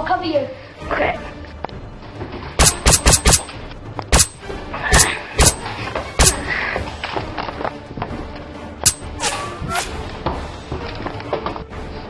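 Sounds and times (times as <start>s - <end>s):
gunshots: 2.6s - 6.5s.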